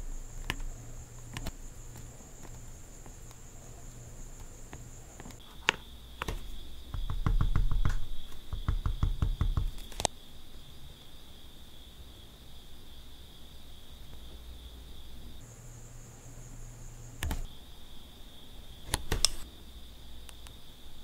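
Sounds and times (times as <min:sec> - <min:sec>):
faint high whine: 0:00.0 - 0:21.0
small sharp clicks: 0:00.4 - 0:06.5, 0:09.6 - 0:10.1, 0:18.8 - 0:19.5
quick tapping: 0:04.4 - 0:10.1.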